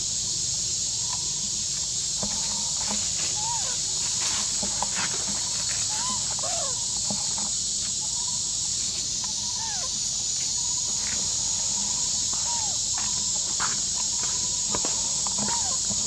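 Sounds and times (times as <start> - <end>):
high insect drone: 0.0 - 16.0
animals rustling in dry leaves: 1.8 - 16.0.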